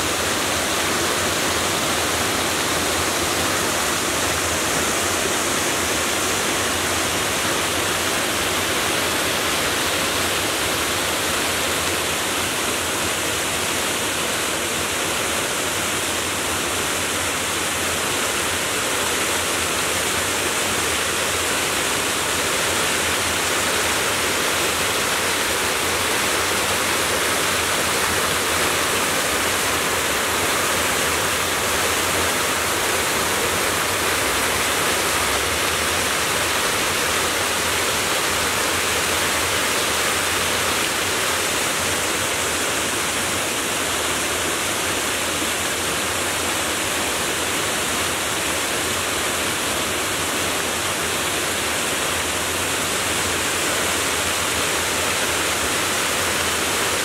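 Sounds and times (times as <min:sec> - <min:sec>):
rush of falling water: 0:00.0 - 0:57.0.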